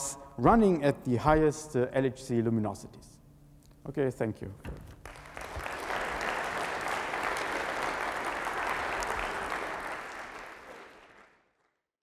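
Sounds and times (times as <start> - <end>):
audience applauding: 5.0 - 11.8.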